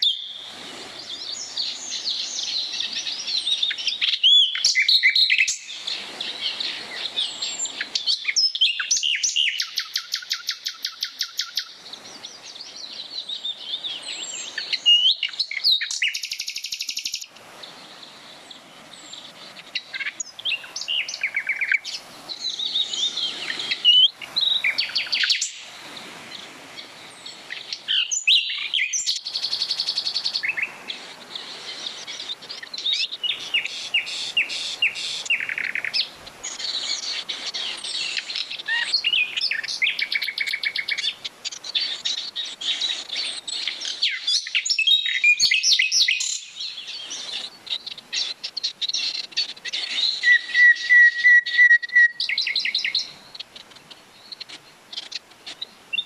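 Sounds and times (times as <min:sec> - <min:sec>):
mountain stream rushing: 0:00.0 - 0:09.2, 0:17.0 - 0:49.0
songbirds singing and trilling: 0:00.0 - 0:56.0.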